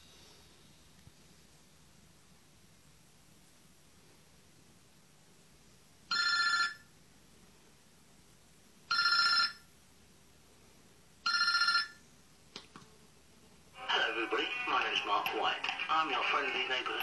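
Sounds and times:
telephone ringing: 0:06.1 - 0:06.8, 0:08.9 - 0:09.6, 0:11.3 - 0:12.0.

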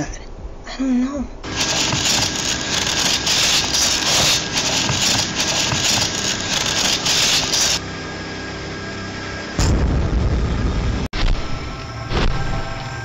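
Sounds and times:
steady hum: 0:01.4 - 0:12.1
hand scraping through sand and gravel: 0:01.5 - 0:07.8
deep boom: 0:09.6 - 0:11.5.

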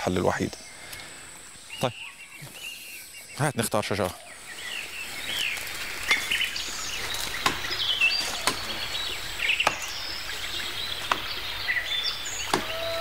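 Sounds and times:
forest birds chirping: 0:00.0 - 0:13.0
blade chopping tree trunk: 0:07.1 - 0:08.8, 0:09.6 - 0:10.0, 0:11.0 - 0:11.4, 0:12.4 - 0:12.8.

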